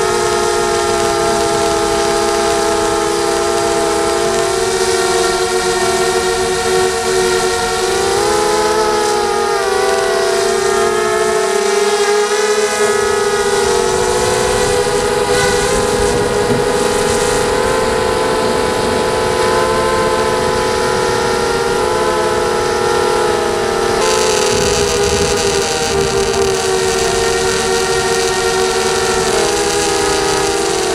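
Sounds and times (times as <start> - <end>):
drone motors whining: 0.0 - 16.6, 24.0 - 30.9.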